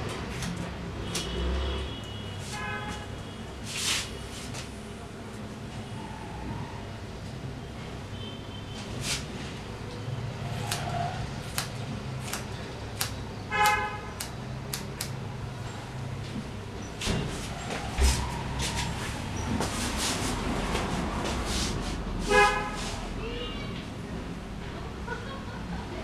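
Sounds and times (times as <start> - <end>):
vehicle horn toot: 1.0 - 3.5, 13.5 - 14.1, 22.3 - 22.8
scissors snipping hair: 10.6 - 15.2.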